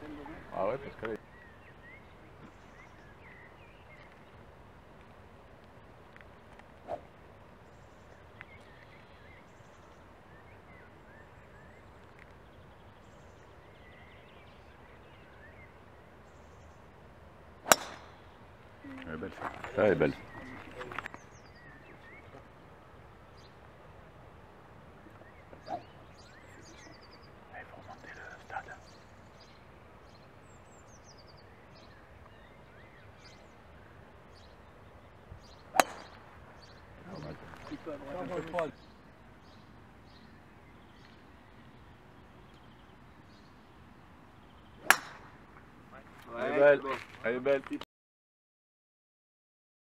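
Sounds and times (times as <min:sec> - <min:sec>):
small birds chirping: 0:00.0 - 0:47.8
golf club striking ball: 0:17.6 - 0:18.3, 0:35.7 - 0:36.3, 0:44.8 - 0:45.4.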